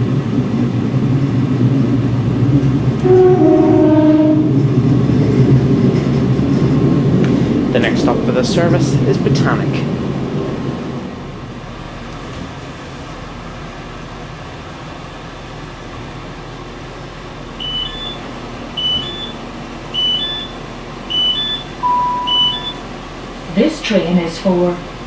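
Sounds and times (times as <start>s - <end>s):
train humming: 0.0s - 25.0s
long steady warning tone: 3.0s - 4.6s, 17.4s - 24.6s
two-note door warning beeps: 17.6s - 18.2s, 18.8s - 19.4s, 20.0s - 22.9s.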